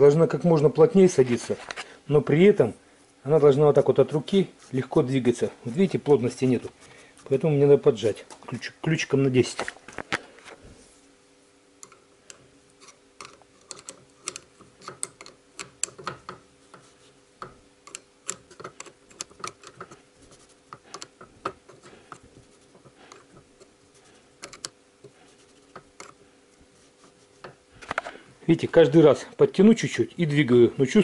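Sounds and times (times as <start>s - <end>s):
small metallic clicks: 11.8s - 16.4s, 17.4s - 20.0s, 24.4s - 24.8s.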